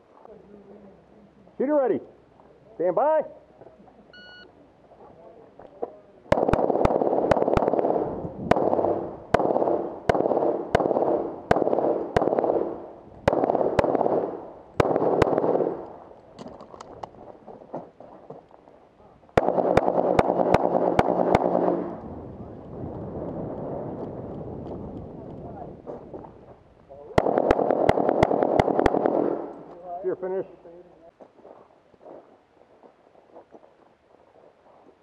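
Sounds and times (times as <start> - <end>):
pistol shots with echo: 6.3 - 15.9, 19.4 - 22.0, 27.2 - 29.6.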